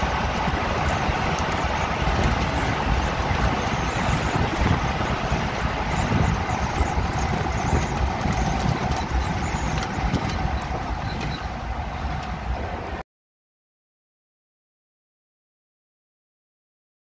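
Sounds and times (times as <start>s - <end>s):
car engine cruising: 0.0s - 13.0s
tyre noise: 0.0s - 13.0s
wind noise: 0.0s - 13.0s.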